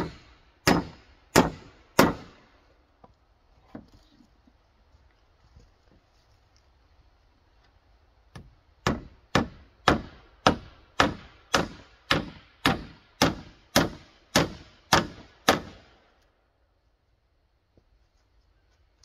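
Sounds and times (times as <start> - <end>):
hammer hitting a nail: 0.0 - 2.3, 8.4 - 15.8.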